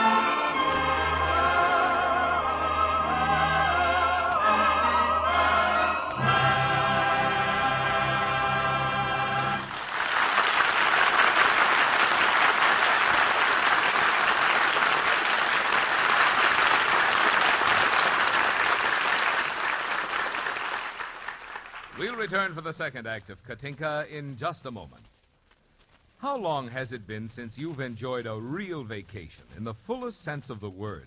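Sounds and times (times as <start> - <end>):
orchestra and singers holding chord: 0.0 - 9.7
audience applauding: 7.4 - 22.6.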